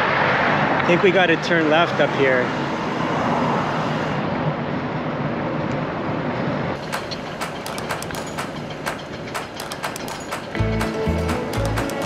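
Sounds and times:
bicycle ticking and clicking: 6.8 - 12.0.

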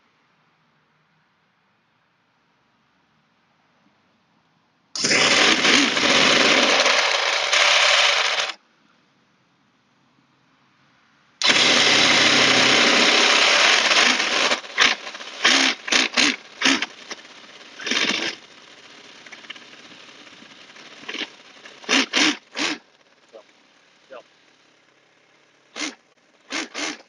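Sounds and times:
engine cranking: 5.0 - 8.6, 11.4 - 27.0.

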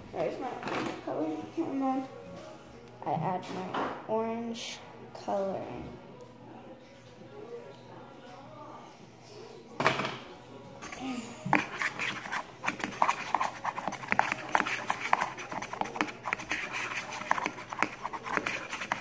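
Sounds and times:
clicks and scrapes against bowl: 10.8 - 19.0
utensil stirring wet slime: 10.8 - 19.0.

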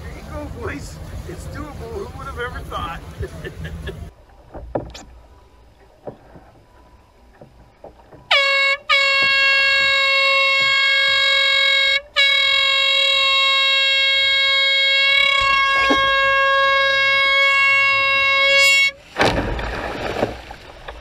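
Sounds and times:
faint knocks: 4.3 - 8.3
air horn blasting: 8.3 - 19.0.

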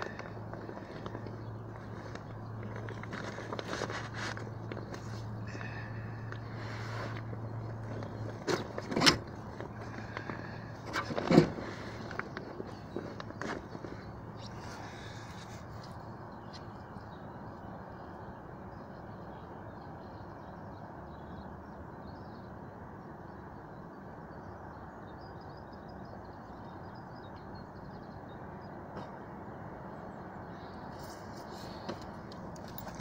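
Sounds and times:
rustling: 0.0 - 5.3.

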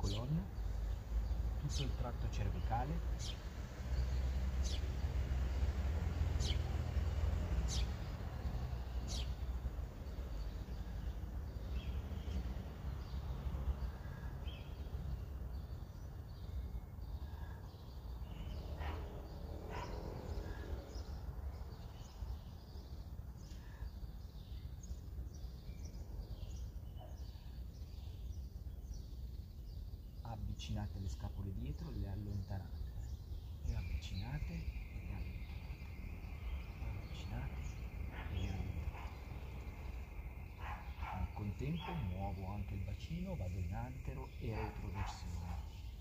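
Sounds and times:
birds chirping: 0.0 - 46.0
bird high falling calls: 30.2 - 46.0.

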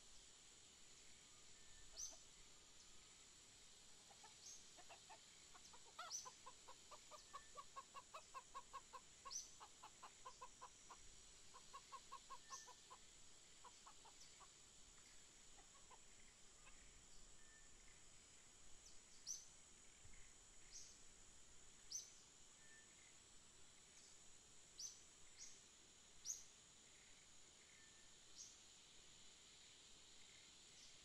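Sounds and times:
steady high hiss: 0.0 - 31.0
chicken clucking: 4.1 - 13.0.

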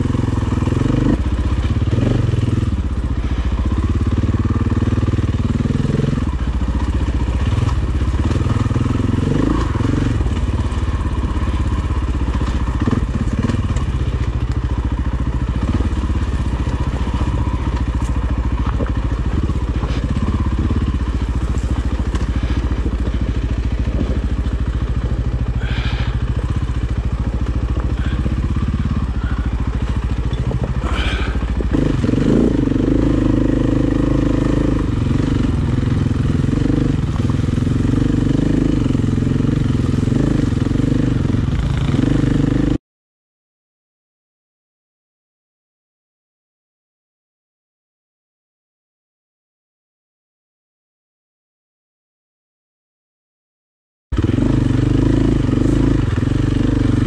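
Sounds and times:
dirt bike engine running: 0.0 - 42.8, 54.1 - 57.0
bike knocking on rocks: 17.7 - 20.1.

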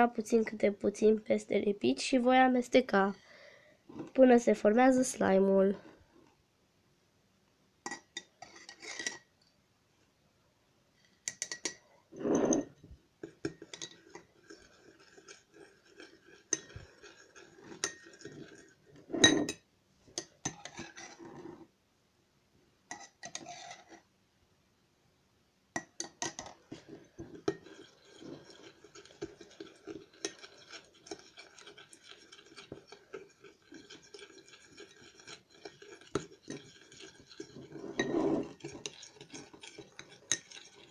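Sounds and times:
metal spoon scraping glass: 7.9 - 9.3, 11.3 - 12.8, 13.4 - 19.6, 20.2 - 21.6, 22.9 - 24.0, 26.0 - 40.9.

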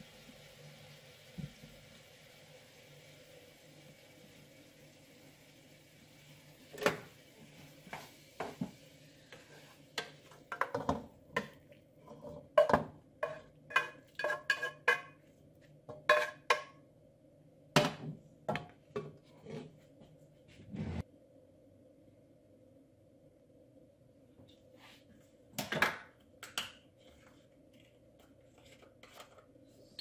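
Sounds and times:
wooden spoon clacking on pan: 12.6 - 15.2, 15.9 - 16.8.

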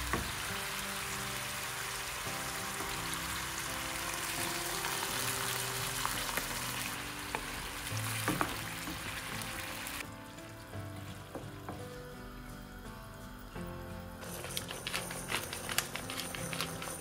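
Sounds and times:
mushrooms sizzling in a pan: 0.0 - 17.0
wooden spoon knocking: 7.3 - 9.3.

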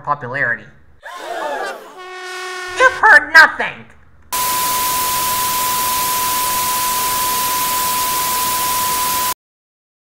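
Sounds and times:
white noise static hiss: 4.4 - 9.3
steady single-pitch beep: 4.4 - 9.4.

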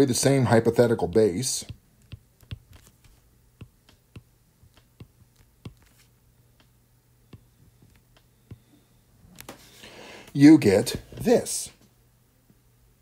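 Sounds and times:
low steady hum: 0.0 - 13.0
stylus tapping tablet screen: 0.8 - 6.7, 7.3 - 8.8.

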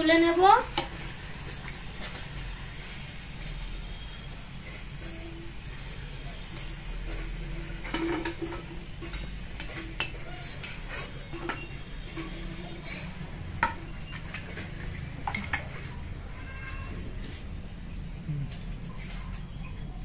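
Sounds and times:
metal spoon clinking and scraping: 6.5 - 16.9
short high squeaks: 12.6 - 13.5.

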